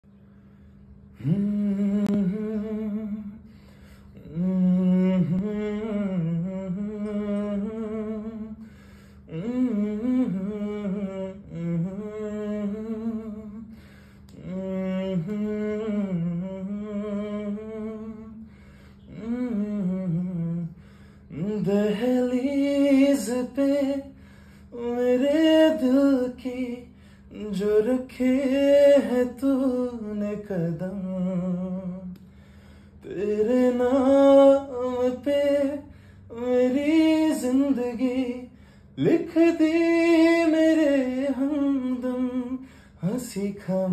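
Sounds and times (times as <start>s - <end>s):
man humming a slow melody: 1.1s - 3.5s, 4.1s - 8.6s, 9.3s - 13.7s, 14.3s - 24.1s, 24.8s - 32.3s
man singing vowels: 1.2s - 3.5s, 4.2s - 8.6s, 9.3s - 13.7s, 14.3s - 18.4s, 19.0s - 32.2s, 33.0s - 43.9s.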